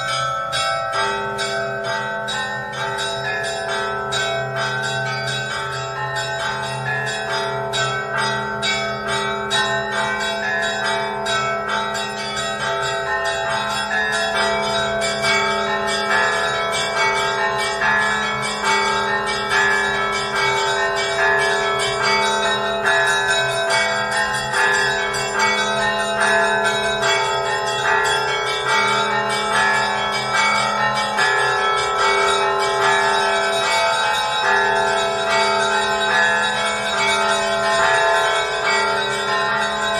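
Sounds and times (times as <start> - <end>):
church bells pealing: 0.0 - 39.9
deep bells ringing steadily: 0.0 - 39.9.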